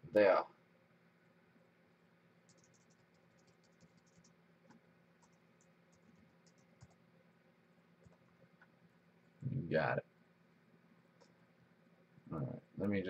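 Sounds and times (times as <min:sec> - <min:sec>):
keyboard typing: 0:02.5 - 0:07.0, 0:08.0 - 0:08.3.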